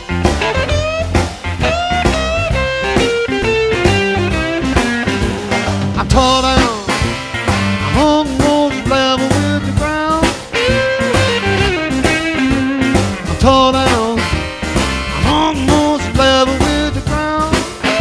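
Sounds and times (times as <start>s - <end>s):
blues song with guitar: 0.0s - 18.0s.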